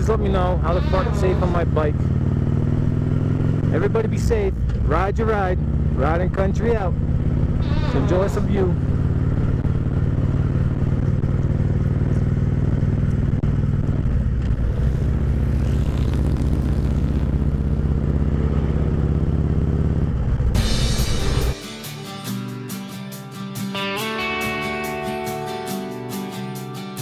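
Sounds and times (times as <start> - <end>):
motorcycle engine running: 0.0 - 21.6.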